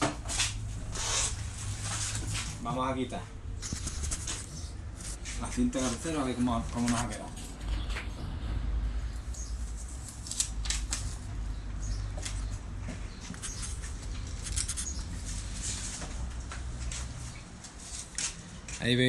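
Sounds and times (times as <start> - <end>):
paper rustling: 3.6 - 7.9, 9.7 - 11.3, 13.2 - 16.2
tape crackling as peeled off: 10.0 - 11.3, 13.4 - 15.8.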